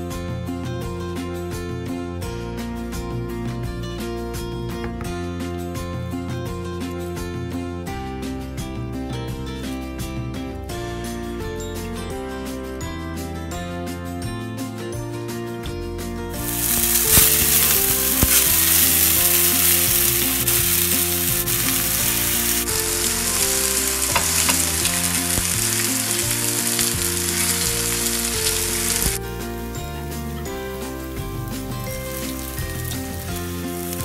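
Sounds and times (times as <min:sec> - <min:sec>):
tofu sizzling in hot oil: 0:16.4 - 0:34.0.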